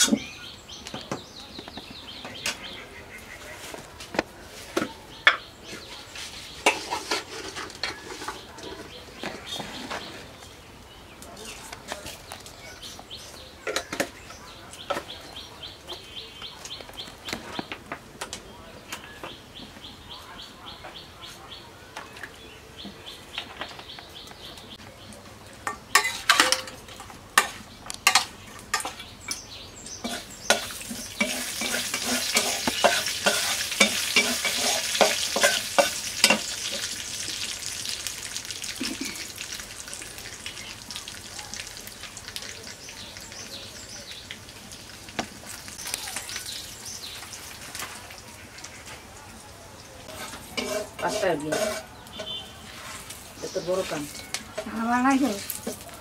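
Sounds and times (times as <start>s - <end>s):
birds chirping: 0.0s - 56.0s
metal spatula scraping pan: 6.2s - 10.2s, 25.9s - 26.8s, 30.0s - 36.8s, 50.1s - 55.8s
seeds sizzling in hot oil: 27.4s - 49.1s, 50.0s - 56.0s.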